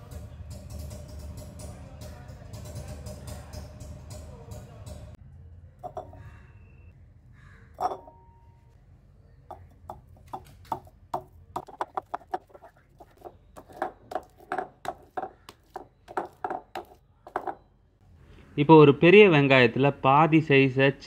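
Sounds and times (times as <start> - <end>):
masher knocking in a bowl: 5.8 - 6.2, 9.5 - 17.6.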